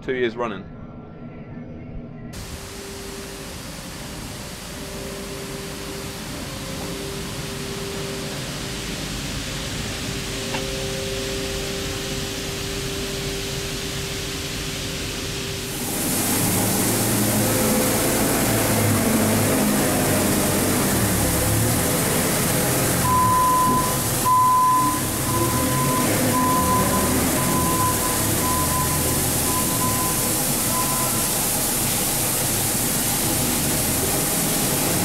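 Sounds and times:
machine hum: 0:00.6 - 0:35.0
falling grain hiss: 0:02.4 - 0:35.0
wheat pouring: 0:14.3 - 0:35.0
telehandler engine running: 0:15.7 - 0:35.0
reversing alarm beeping: 0:23.0 - 0:31.5.

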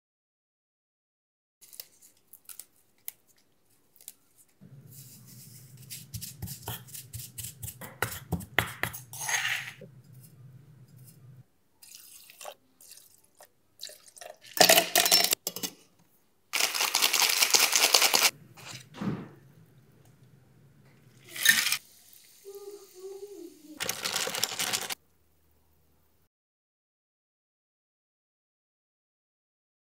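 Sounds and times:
liquid pouring into glass: 0:11.8 - 0:15.2
ice rattling in shaker: 0:16.6 - 0:18.3, 0:23.8 - 0:25.0.

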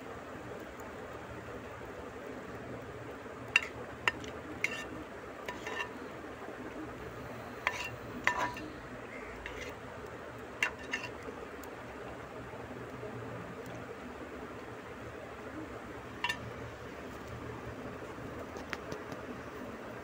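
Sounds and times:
steady hiss: 0:00.0 - 0:20.0
metal ladle clinking on pan: 0:03.6 - 0:04.9, 0:05.5 - 0:05.9, 0:07.7 - 0:08.6, 0:10.6 - 0:11.1, 0:16.2 - 0:16.5.

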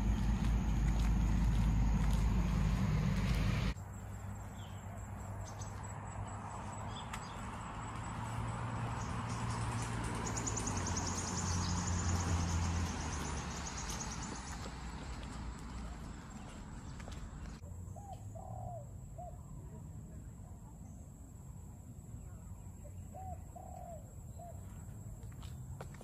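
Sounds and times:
loud low rumble: 0:00.0 - 0:03.8.

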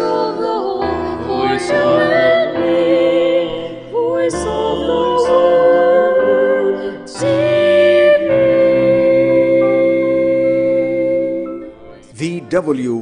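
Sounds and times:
singers holding long notes: 0:00.0 - 0:13.0
instrumental backing: 0:07.2 - 0:13.0.

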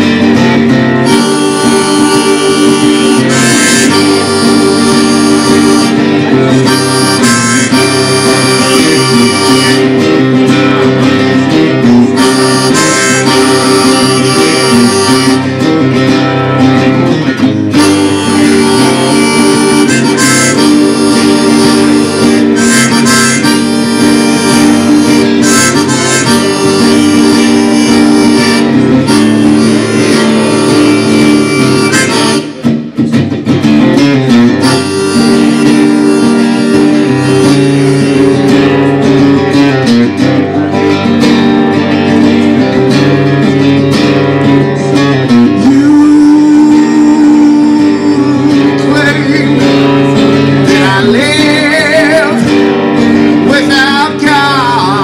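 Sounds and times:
wailing harmonica: 0:00.0 - 0:32.8, 0:34.2 - 0:43.1, 0:44.8 - 0:55.0
strummed guitar: 0:00.0 - 0:55.0.

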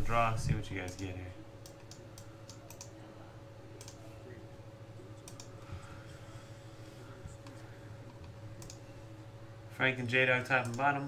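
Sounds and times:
faint steady hum: 0:00.0 - 0:11.0
keyboard and mouse clicks: 0:05.2 - 0:05.5, 0:08.2 - 0:08.8.

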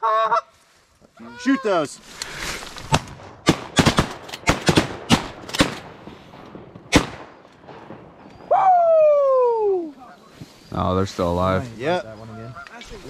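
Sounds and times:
shotgun shots: 0:02.9 - 0:06.0, 0:06.9 - 0:07.4.

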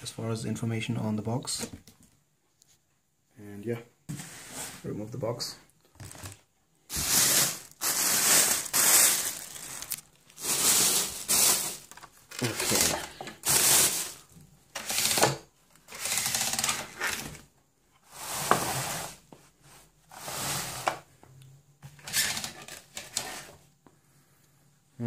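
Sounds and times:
plastic bag rustling and crinkling: 0:06.0 - 0:17.3.

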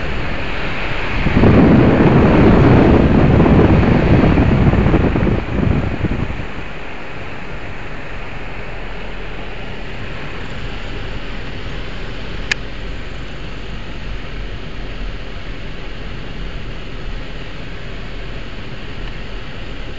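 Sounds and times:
wind buffeting microphone: 0:00.0 - 0:08.4
car road noise: 0:00.0 - 0:19.9.

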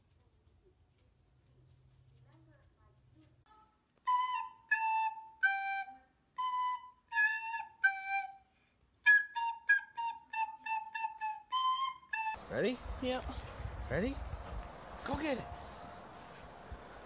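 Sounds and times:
flute-like wind instrument tune: 0:04.0 - 0:12.4.

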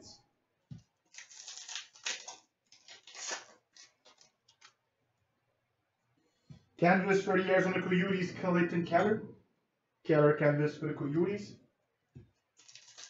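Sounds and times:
trading cards rustling: 0:01.1 - 0:04.8, 0:12.6 - 0:13.0.

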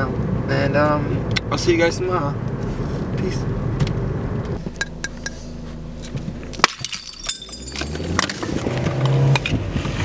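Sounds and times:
car engine running: 0:00.0 - 0:10.0
sharp knocks and clinks: 0:06.6 - 0:08.4.

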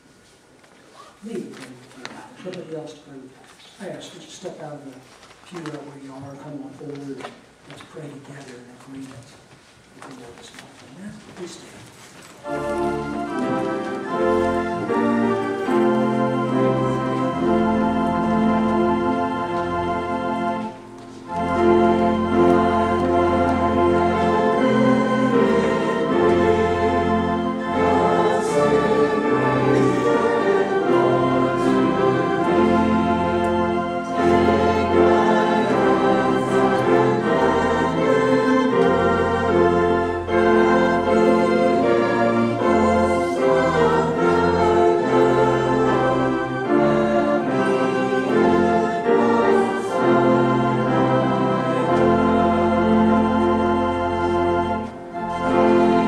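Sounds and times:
congregation singing: 0:12.3 - 0:56.0
organ playing a slow hymn: 0:12.4 - 0:56.0.

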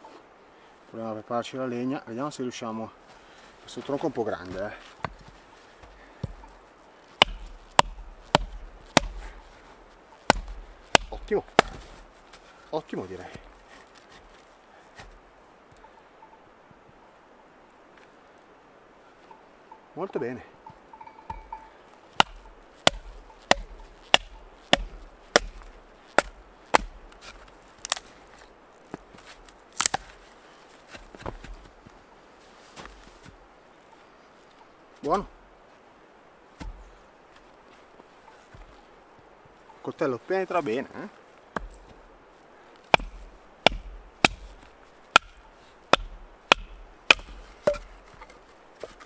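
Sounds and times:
baton knocking on knife: 0:10.3 - 0:11.8, 0:22.2 - 0:27.0.

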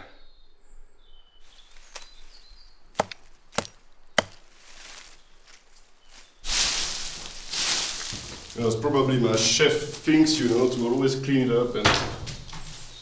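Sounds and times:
hatchet chopping wood: 0:02.9 - 0:04.4
loud rustling rush: 0:06.4 - 0:08.8.

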